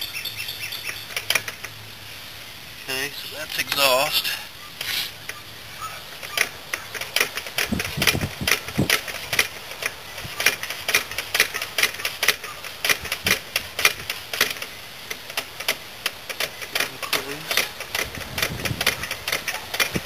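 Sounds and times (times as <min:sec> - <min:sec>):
engine metallic clicking: 0:00.2 - 0:01.8, 0:06.2 - 0:20.0.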